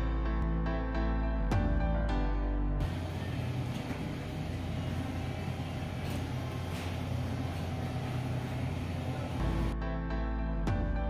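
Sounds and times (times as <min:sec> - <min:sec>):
supermarket rumble and hum: 0:02.8 - 0:09.8.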